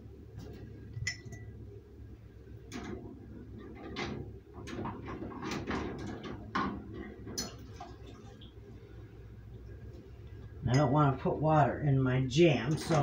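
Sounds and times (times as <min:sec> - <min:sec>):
glass jars clinking: 0:01.0 - 0:01.6
water splashing: 0:07.5 - 0:08.6.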